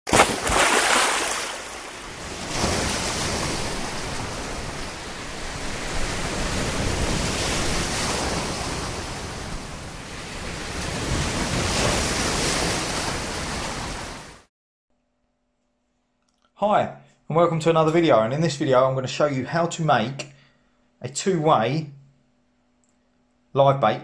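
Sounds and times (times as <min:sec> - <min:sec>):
waves breaking on shore: 0:00.1 - 0:14.5.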